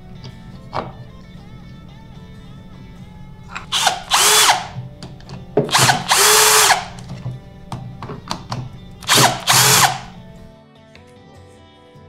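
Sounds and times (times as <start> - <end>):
background music: 0.0 - 12.0
cordless drill driving screws: 3.5 - 4.8, 5.6 - 7.1, 9.0 - 10.2.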